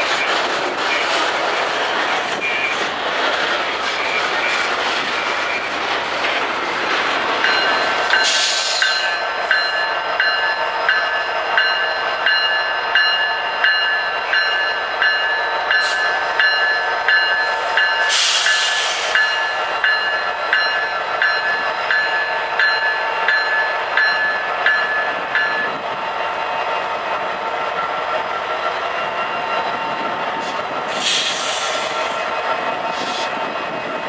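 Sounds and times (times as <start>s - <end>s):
diesel locomotives passing: 0.0s - 34.0s
bell striking: 7.4s - 18.6s, 19.2s - 25.8s.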